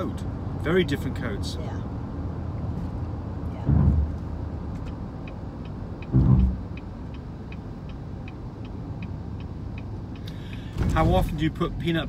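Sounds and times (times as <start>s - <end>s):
car road and engine noise: 0.0s - 12.0s
turn signal ticking: 1.7s - 12.0s
brief low thuds: 3.6s - 4.3s, 6.0s - 6.8s.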